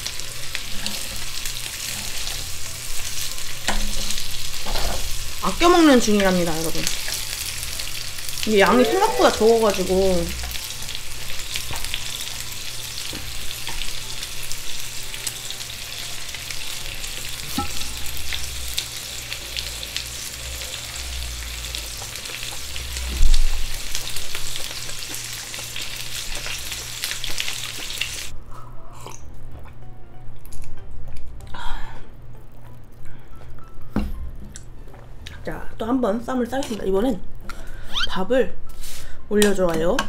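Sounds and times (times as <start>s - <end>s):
meat sizzling on a grill: 0.0s - 28.3s.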